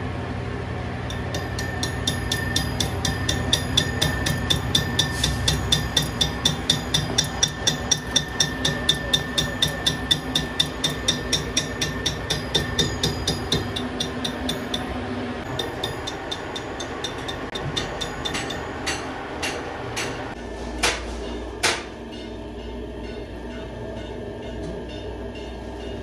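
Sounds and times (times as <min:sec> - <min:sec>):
machine hum: 0:00.0 - 0:20.5
metal-on-metal taps: 0:15.5 - 0:21.0.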